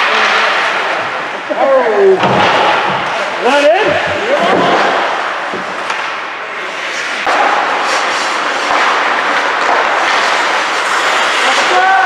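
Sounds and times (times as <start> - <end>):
skate blades scraping ice: 3.5 - 12.0.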